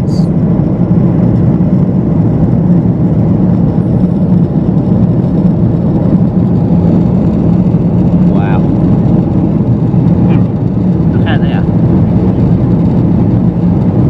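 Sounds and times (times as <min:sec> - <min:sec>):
jet engine drone: 0:00.0 - 0:14.0
rushing air: 0:00.0 - 0:14.0.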